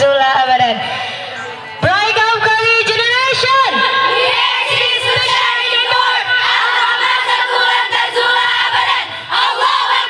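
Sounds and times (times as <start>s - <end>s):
women singing in unison: 3.7s - 10.0s.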